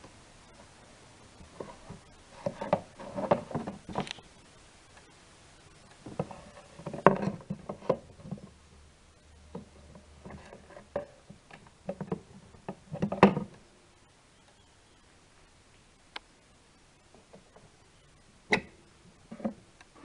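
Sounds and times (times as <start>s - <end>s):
plastic cover knocking and rattling: 6.1s - 8.5s.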